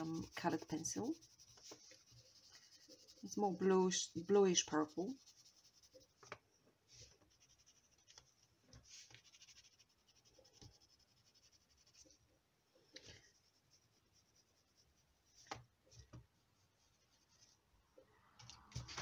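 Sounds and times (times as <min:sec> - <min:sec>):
colored pencil scratching on paper: 0:00.0 - 0:12.2, 0:13.0 - 0:15.6.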